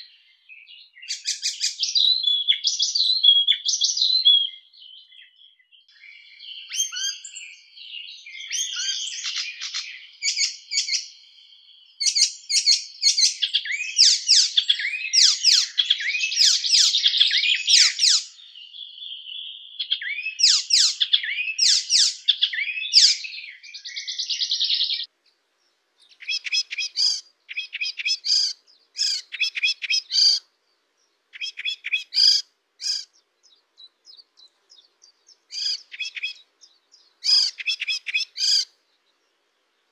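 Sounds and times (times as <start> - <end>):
warbler singing chattering song: 0.0 - 39.9.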